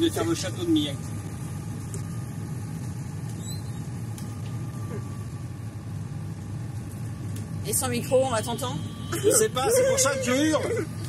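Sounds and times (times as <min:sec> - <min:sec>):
road noise: 0:00.0 - 0:11.0
van engine: 0:00.0 - 0:11.0.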